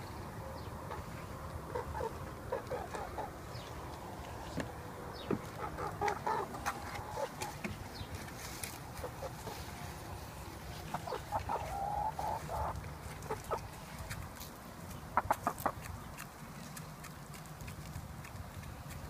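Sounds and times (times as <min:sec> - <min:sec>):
hens clucking: 0:00.5 - 0:16.4
hen pecking corn from a hand: 0:10.9 - 0:19.0.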